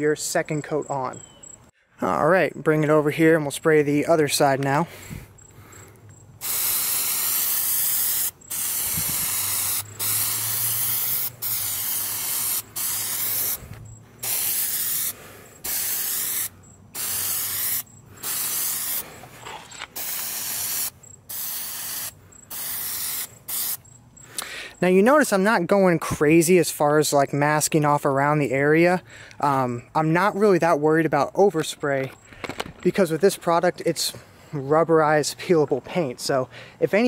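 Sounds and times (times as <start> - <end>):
aerosol can spraying: 6.4 - 19.0, 19.9 - 23.8.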